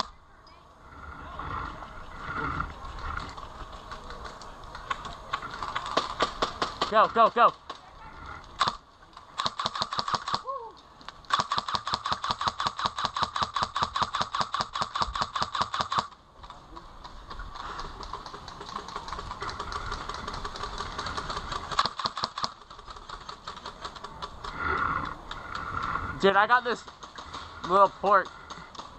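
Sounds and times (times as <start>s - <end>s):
faint rapid gunfire: 8.6s - 10.4s, 11.3s - 16.2s, 17.6s - 24.3s
airsoft rifle full auto fire: 9.4s - 10.4s, 11.3s - 16.1s, 21.7s - 22.7s.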